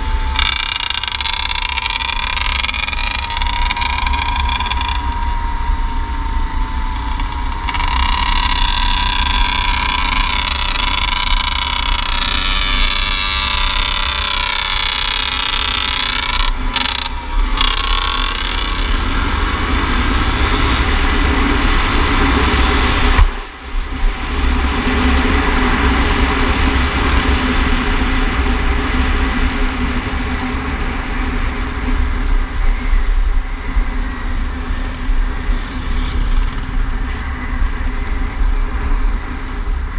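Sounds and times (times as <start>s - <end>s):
dirt bike engine running: 0.0s - 23.4s, 34.7s - 37.6s
wind noise on microphone: 0.0s - 39.9s.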